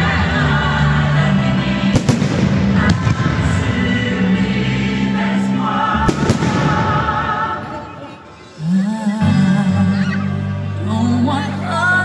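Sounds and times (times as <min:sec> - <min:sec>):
music with singing: 0:00.0 - 0:12.0
firework bangs: 0:01.9 - 0:03.8, 0:06.0 - 0:07.5.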